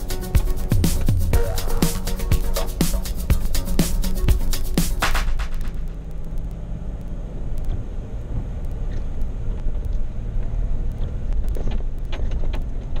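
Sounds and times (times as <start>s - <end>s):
sharp ticks and rattles: 0.0s - 13.0s
vehicle engine and road rumble: 5.3s - 13.0s.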